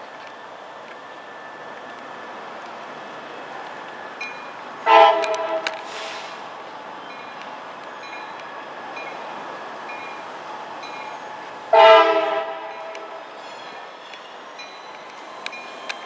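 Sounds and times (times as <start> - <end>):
approaching train noise: 0.0 - 16.0
crossing bell dinging: 4.1 - 5.9, 7.0 - 16.0
locomotive air horn blast: 4.8 - 6.4, 11.7 - 13.2.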